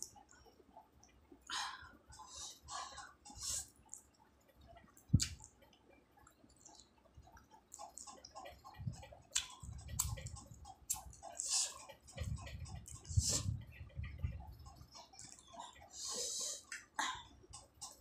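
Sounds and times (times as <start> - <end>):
wet chewing: 3.0 - 13.4.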